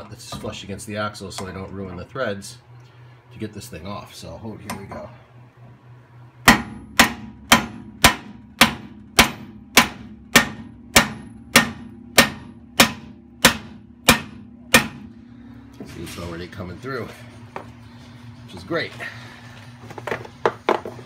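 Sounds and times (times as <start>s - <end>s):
hammer striking steel nut: 6.4s - 15.0s.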